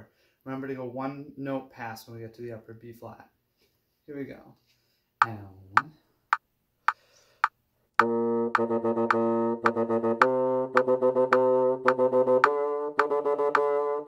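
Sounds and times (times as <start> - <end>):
metronome clicks: 5.2 - 13.9
bassoon playing scale: 8.0 - 14.0.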